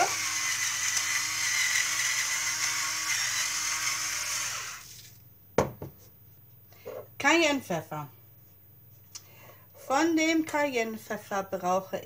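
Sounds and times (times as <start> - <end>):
electric pepper mill whirring: 0.0 - 5.0.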